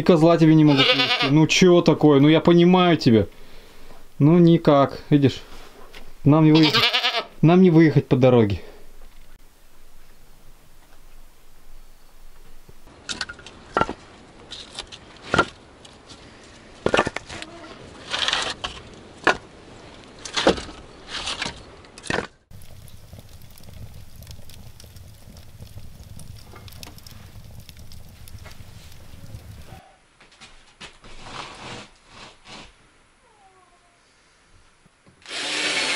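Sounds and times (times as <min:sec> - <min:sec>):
low steady hum: 0:07.3 - 0:12.9, 0:22.5 - 0:29.8
firewood logs knocking: 0:22.0 - 0:29.8
wood fire crackling in stove: 0:22.5 - 0:29.8.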